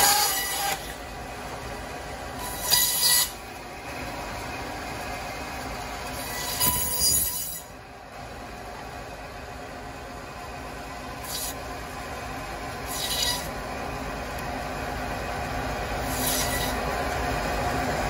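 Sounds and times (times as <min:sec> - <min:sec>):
saw cutting bone: 0:00.0 - 0:01.0, 0:02.4 - 0:03.4, 0:06.1 - 0:07.7, 0:11.2 - 0:11.6, 0:12.8 - 0:13.6, 0:16.0 - 0:16.9
band saw humming: 0:00.0 - 0:08.5, 0:10.0 - 0:18.0.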